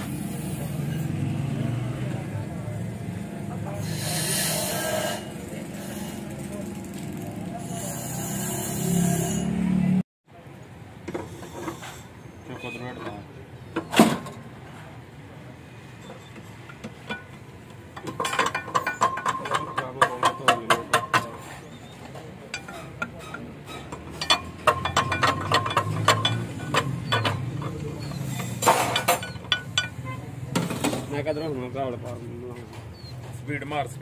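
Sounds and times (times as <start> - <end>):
metal tools clicking and clinking: 16.0 - 31.0.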